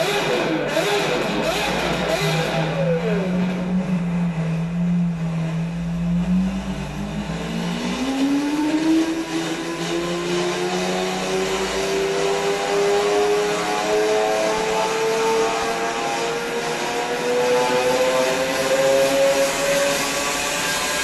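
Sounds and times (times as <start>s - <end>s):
car engine revving: 0.0s - 21.0s.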